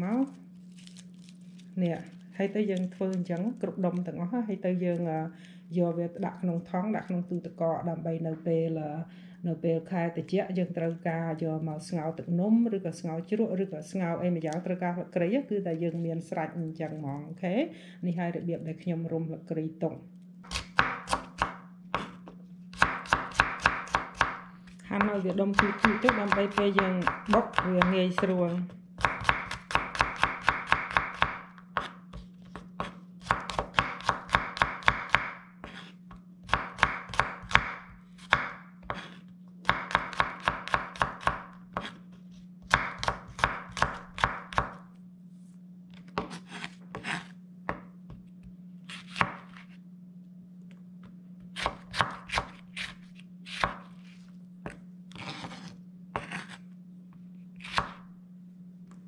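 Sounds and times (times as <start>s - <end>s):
steady low hum: 0.0s - 59.0s
knife chopping on wooden board: 20.5s - 24.4s, 25.0s - 42.0s, 42.6s - 44.8s, 46.1s - 48.2s, 48.9s - 49.6s, 51.5s - 54.0s, 54.6s - 56.6s, 57.6s - 58.0s.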